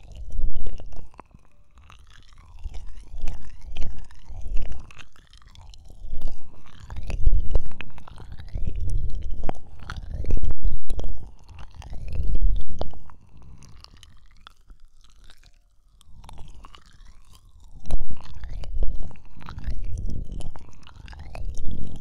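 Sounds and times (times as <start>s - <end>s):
rubbing and scratching on microphone: 0.0s - 1.6s, 2.3s - 13.8s, 17.7s - 22.0s.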